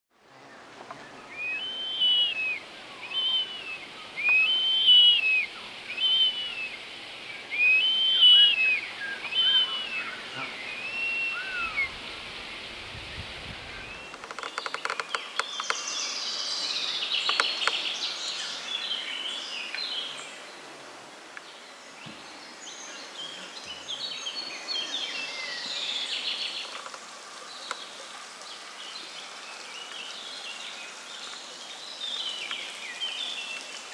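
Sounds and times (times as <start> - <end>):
songbirds chirping and singing: 0.3 - 12.8, 13.6 - 20.7, 21.4 - 33.9
bird of prey calling: 1.3 - 6.8, 7.5 - 12.0.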